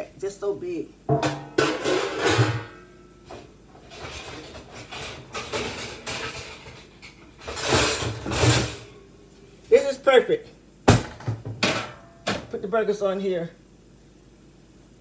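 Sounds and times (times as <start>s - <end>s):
metal pans clattering and scraping: 1.1s - 9.0s, 11.0s - 12.5s.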